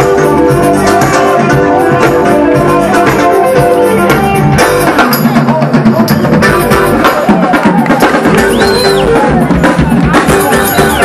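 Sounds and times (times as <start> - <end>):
live band playing dance music: 0.0 - 11.0.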